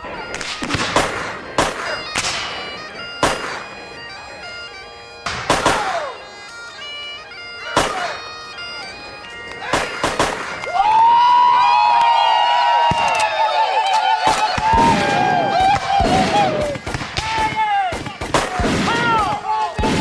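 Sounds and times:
bagpipes playing over drone: 0.0 - 18.1
gunshots: 0.3 - 2.6, 3.2 - 3.6, 5.2 - 6.0, 7.8 - 8.1, 9.7 - 10.6, 14.3 - 20.0.

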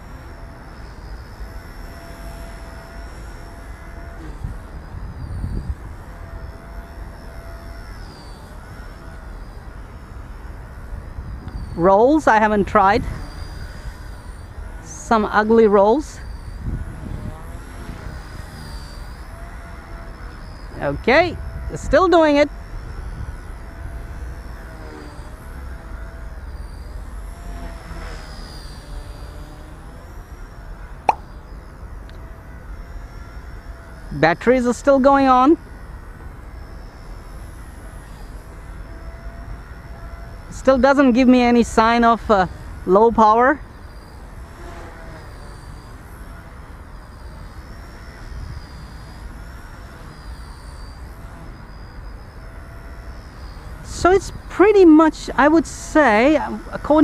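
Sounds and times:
toy helicopter rotor whine: 0.0 - 57.0
wind rumble on microphone: 3.5 - 7.8, 8.6 - 26.3.

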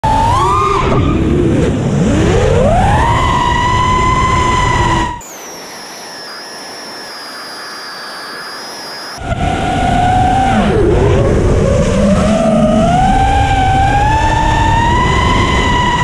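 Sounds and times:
drone motors whining: 2.0 - 16.0
rushing wind: 9.2 - 16.0.

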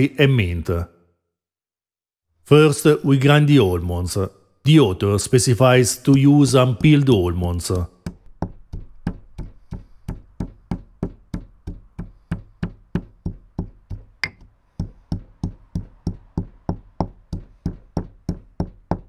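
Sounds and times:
pestle pounding in stone mortar: 6.8 - 7.1, 8.0 - 19.0.

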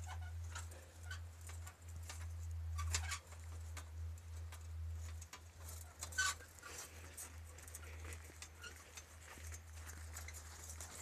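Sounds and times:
footsteps on dirt trail: 6.4 - 11.0.

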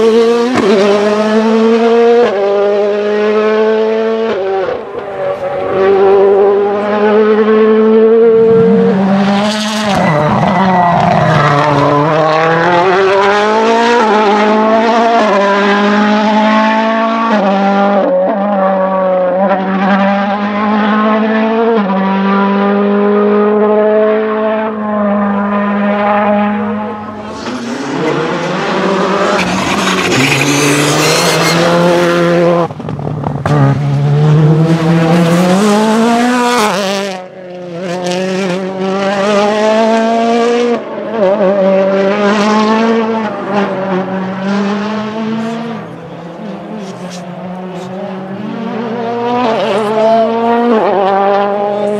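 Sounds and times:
car passing close: 0.0 - 18.0
rally car engines revving: 0.0 - 51.9.

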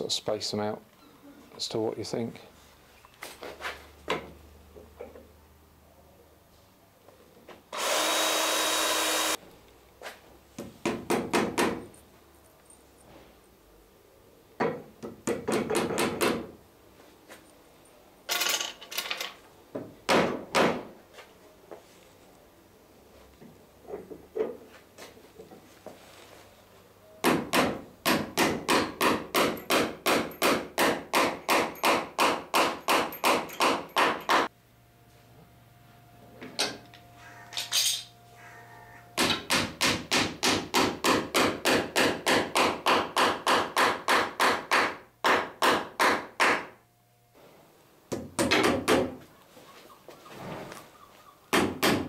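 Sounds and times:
hammer striking nails into wood: 10.6 - 11.9, 15.0 - 16.5, 20.1 - 20.9, 27.2 - 34.5, 39.2 - 46.7, 48.1 - 49.2, 51.5 - 52.0.

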